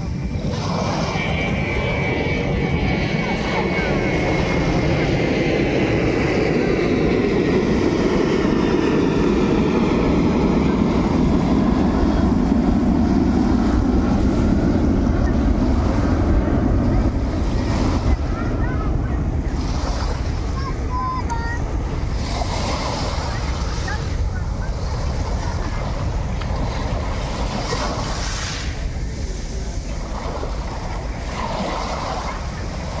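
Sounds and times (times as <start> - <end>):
wind rumbling on microphone: 0.0 - 33.0
waves washing over pebbles: 24.8 - 33.0.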